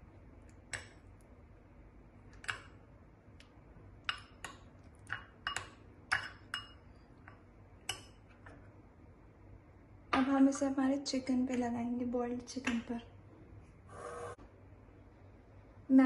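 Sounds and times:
spoon clinking against bowl: 5.1s - 6.8s.

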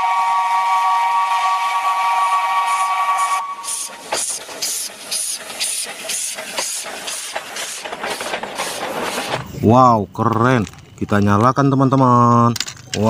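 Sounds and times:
steam whistle chord: 0.0s - 3.9s
steam hissing: 0.0s - 9.6s
locomotive exhaust chuffing: 0.0s - 9.9s.

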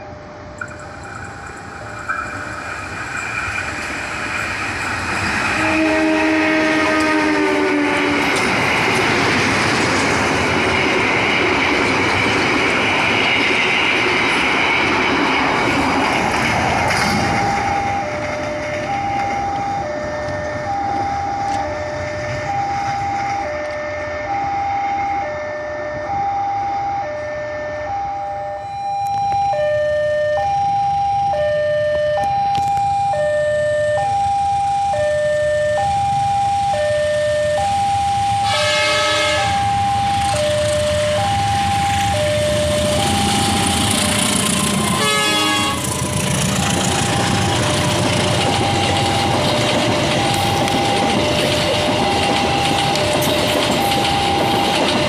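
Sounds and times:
level-crossing alarm chime: 0.0s - 5.3s, 16.9s - 55.0s
train running past: 0.0s - 28.8s, 29.4s - 55.0s
train horn blasts: 5.5s - 8.5s, 38.3s - 39.8s, 43.6s - 46.1s.

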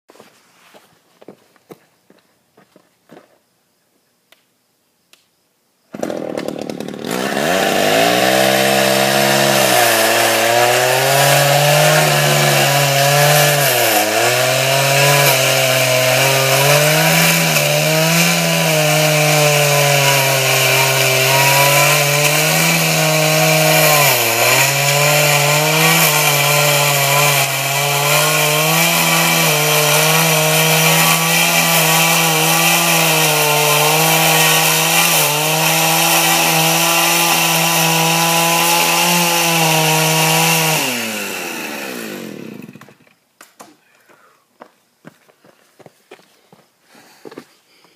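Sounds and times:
chainsaw cutting into dirt: 5.9s - 43.1s.

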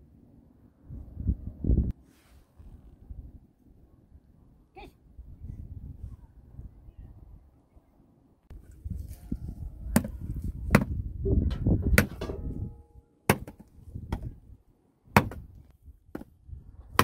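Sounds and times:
hatchet chopping wood: 10.7s - 11.0s, 13.3s - 14.3s, 15.1s - 15.5s.

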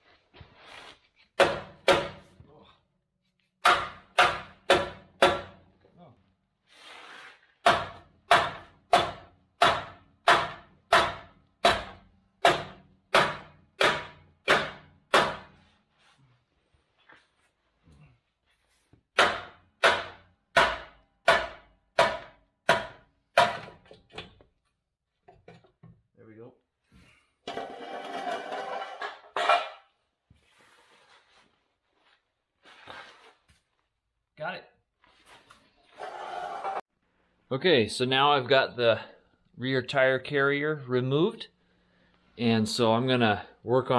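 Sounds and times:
hammer pounding on steel: 1.4s - 2.3s, 3.6s - 5.6s, 7.6s - 15.6s, 19.2s - 23.8s.

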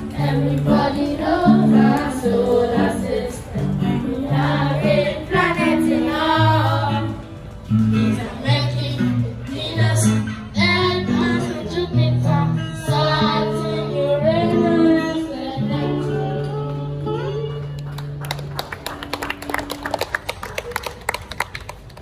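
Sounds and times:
person singing with accompaniment: 0.0s - 17.5s
children clapping: 17.8s - 22.0s.

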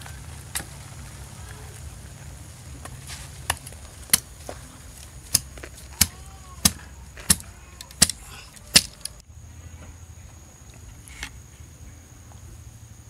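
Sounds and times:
blade chopping wood: 5.3s - 9.2s.

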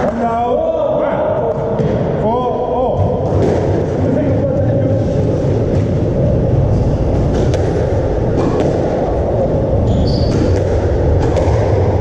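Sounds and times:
ball hitting walls: 2.9s - 3.9s, 7.2s - 9.1s, 10.2s - 12.0s
low rumble: 2.9s - 12.0s
squash racket strikes: 3.2s - 4.0s, 10.3s - 12.0s.

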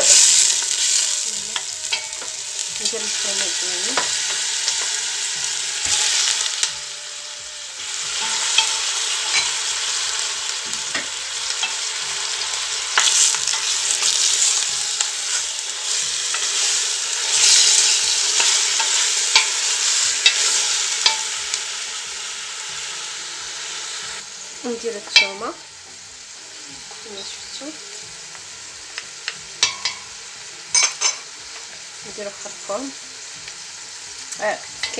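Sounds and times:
meat sizzling in oil: 0.0s - 34.9s.

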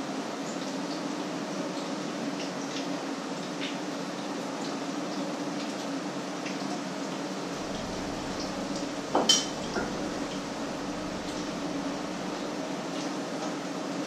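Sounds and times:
low steady hum: 7.5s - 13.1s.

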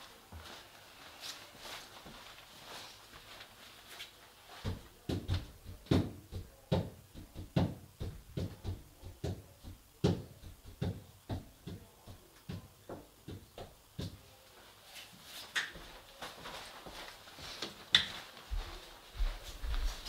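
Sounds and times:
irregular knocks and thumps: 4.6s - 14.2s.

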